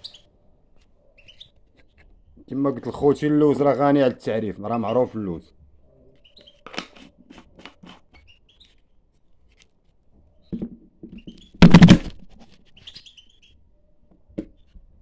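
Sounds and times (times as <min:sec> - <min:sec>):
faint bird chirps: 0:00.0 - 0:02.1, 0:05.8 - 0:06.7, 0:12.6 - 0:14.8
handling knock on phone: 0:10.5 - 0:12.2
handling scrape on microphone: 0:11.4 - 0:13.1.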